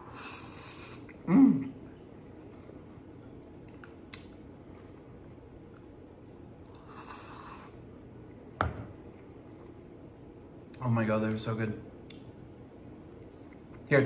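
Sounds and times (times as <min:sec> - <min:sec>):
bowl knocking on table: 0:08.6 - 0:08.9.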